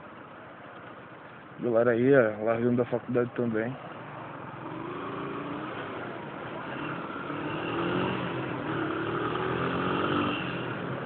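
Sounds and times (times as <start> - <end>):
motorcycle engine accelerating: 4.0 - 11.0.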